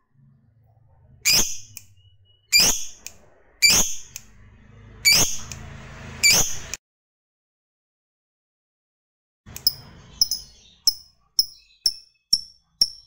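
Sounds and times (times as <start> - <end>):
lovebird sharp high calls: 1.2 - 3.0, 3.6 - 4.2, 5.0 - 5.5, 9.6 - 13.0.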